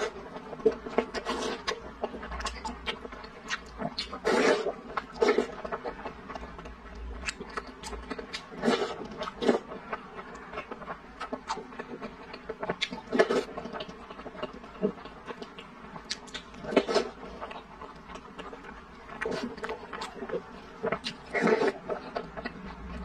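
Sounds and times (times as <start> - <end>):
person slurping and chewing: 0.0 - 9.8, 16.0 - 23.0.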